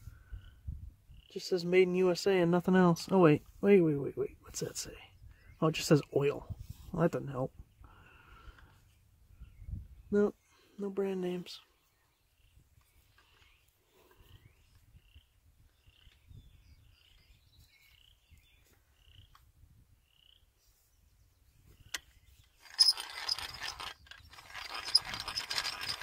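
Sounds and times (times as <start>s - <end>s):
faint bird chirps: 8.8s - 10.8s, 11.6s - 19.4s
hand drill gears clicking: 22.6s - 26.0s.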